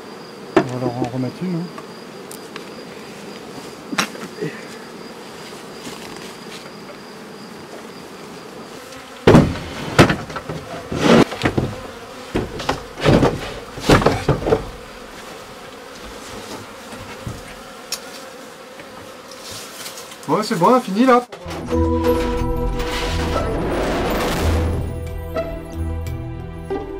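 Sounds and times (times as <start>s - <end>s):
bees buzzing: 0.0s - 26.9s
wooden knocks and clatter: 9.3s - 14.8s.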